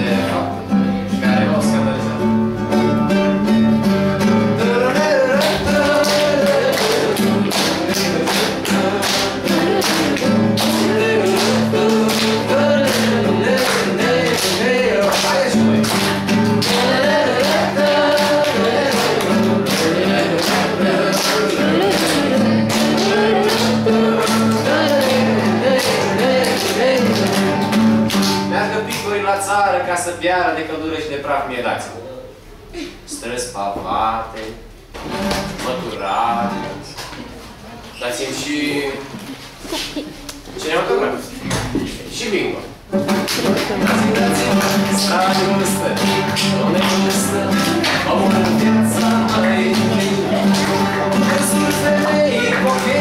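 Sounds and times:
man singing folk song: 0.0 - 3.1, 3.8 - 29.9, 43.0 - 53.0
acoustic guitar strumming: 0.0 - 30.3, 34.8 - 37.4, 42.8 - 53.0
children clapping in time: 5.3 - 29.1, 43.0 - 53.0.

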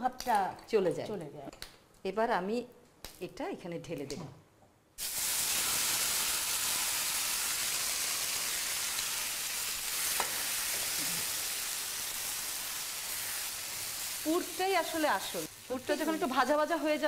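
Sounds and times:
paste sizzling in hot oil: 5.0 - 17.0.

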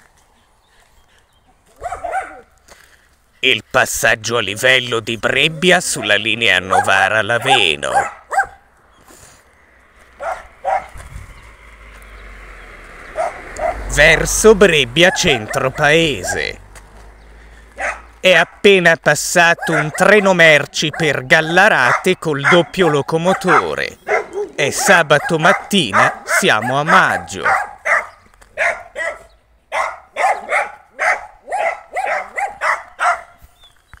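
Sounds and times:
dog barking: 1.7 - 2.5, 5.8 - 8.6, 10.2 - 11.0, 13.1 - 13.9, 15.0 - 16.6, 17.8 - 18.6, 19.5 - 33.4.

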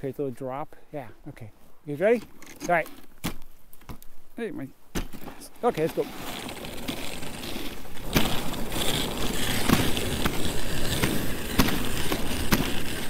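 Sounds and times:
sled knocking over bumps: 4.9 - 13.0
sled runners scraping on snow: 5.0 - 13.0.

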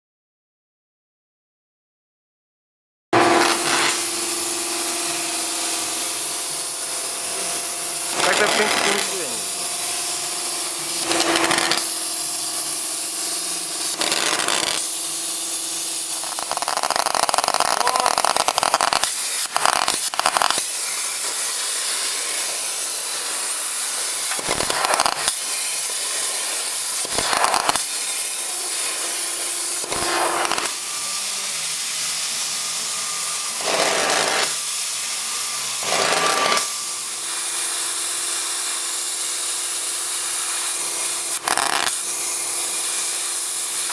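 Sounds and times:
plasma cutter hissing: 3.2 - 43.9.

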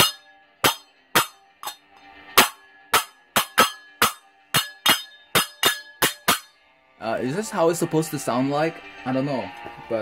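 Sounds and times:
toy hand cymbals clashing: 0.0 - 6.5.

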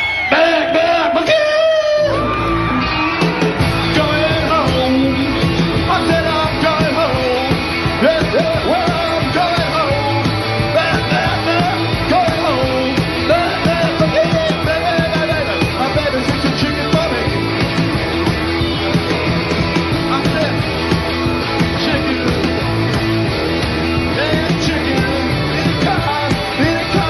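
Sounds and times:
twangy electric guitars: 0.0 - 27.0
man singing and yelping: 0.2 - 2.2, 3.8 - 17.3, 24.1 - 27.0
pounding drums: 3.2 - 27.0.

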